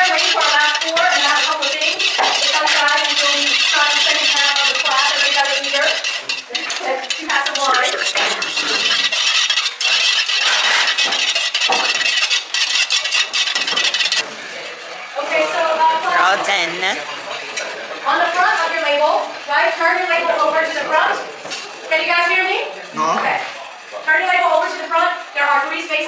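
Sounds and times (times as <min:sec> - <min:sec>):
voices talking: 0:06.7 - 0:08.9, 0:15.8 - 0:17.2.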